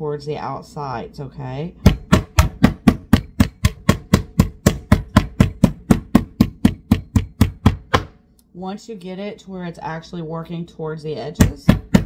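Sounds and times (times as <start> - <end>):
meat hammer pounding meat: 1.8 - 8.2, 11.4 - 12.0.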